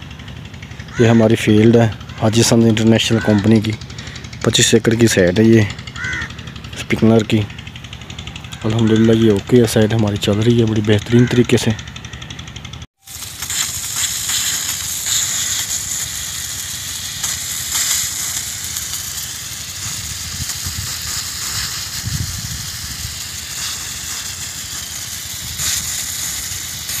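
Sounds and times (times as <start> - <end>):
low rumbling: 0.0 - 10.8
water spraying from sprinklers: 13.0 - 27.0.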